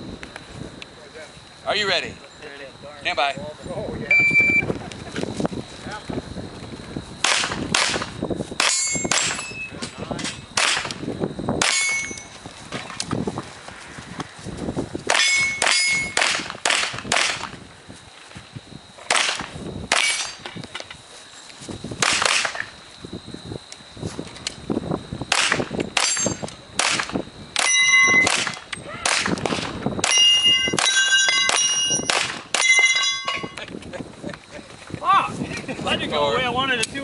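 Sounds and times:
pistol shots: 7.2 - 9.4, 10.6 - 11.0, 15.1 - 17.5, 19.1 - 20.4, 25.3 - 32.7
steel target ringing clang: 8.6 - 9.7, 11.7 - 12.3, 15.2 - 16.2, 27.6 - 28.3, 30.1 - 33.6.

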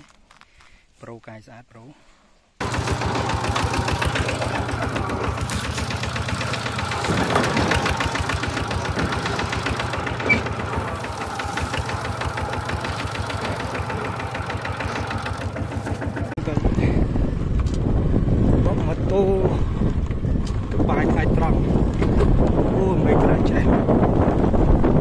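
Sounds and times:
single-cylinder diesel engine chugging: 2.6 - 16.6.

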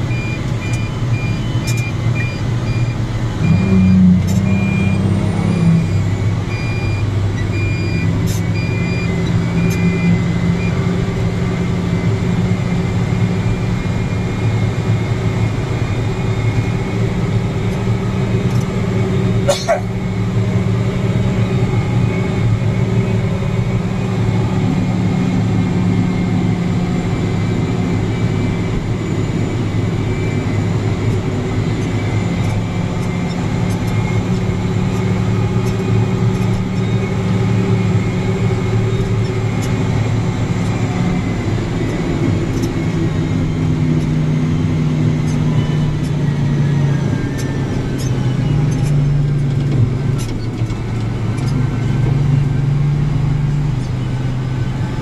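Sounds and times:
diesel machinery engine drone: 0.0 - 55.0.

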